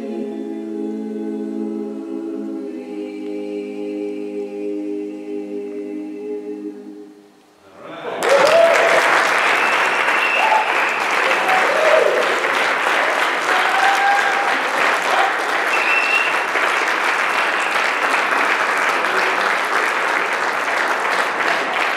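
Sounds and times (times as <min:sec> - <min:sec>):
cheers and whoops: 0:08.0 - 0:12.4, 0:13.4 - 0:16.3
audience clapping: 0:08.2 - 0:21.9.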